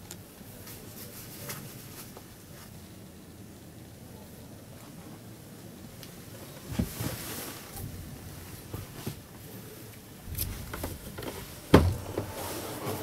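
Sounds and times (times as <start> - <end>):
rustling and light clicks: 0.0 - 2.8.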